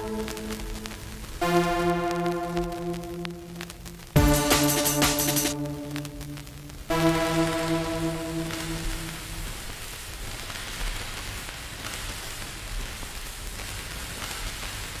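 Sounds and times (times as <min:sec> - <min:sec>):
held synth chord with pulsing bass: 0:00.0 - 0:09.7
static-like hiss: 0:00.0 - 0:15.0.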